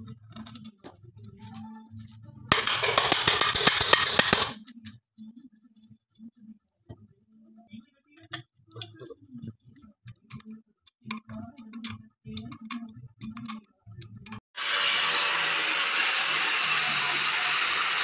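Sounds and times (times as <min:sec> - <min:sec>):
angle grinder whirring: 0:14.6 - 0:18.0.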